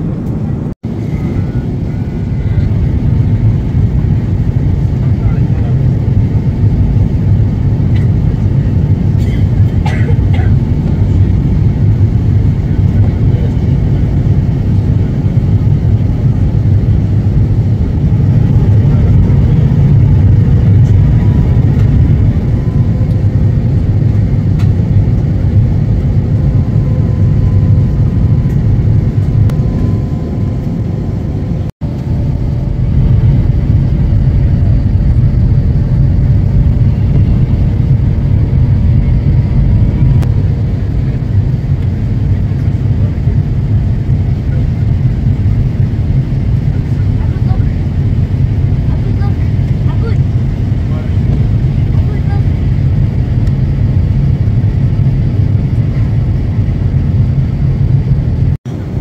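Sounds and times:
jet engines rumbling in cabin: 0:00.0 - 0:59.0
rushing air: 0:13.7 - 0:42.6.

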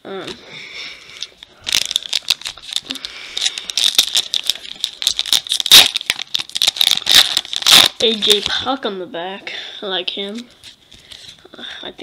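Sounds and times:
wrapper crinkling and tearing: 0:01.1 - 0:08.6.

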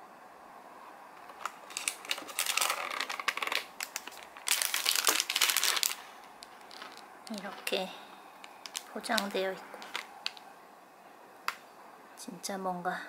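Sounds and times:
plastic wrapper crinkling: 0:01.2 - 0:07.8, 0:08.4 - 0:10.5.

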